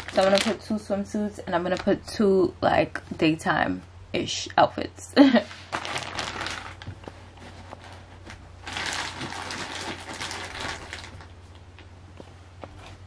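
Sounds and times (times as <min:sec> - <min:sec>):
steady low hum: 0:00.0 - 0:13.0
clothes rustling: 0:05.4 - 0:13.0.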